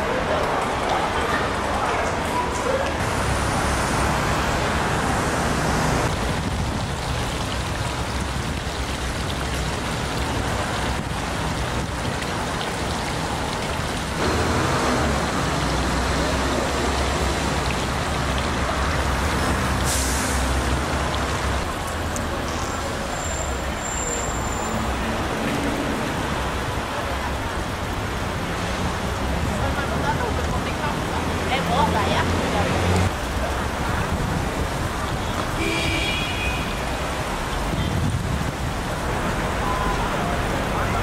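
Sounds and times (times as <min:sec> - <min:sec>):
city traffic hum: 0:00.0 - 0:41.0
fountain jets splashing into pool: 0:00.0 - 0:41.0.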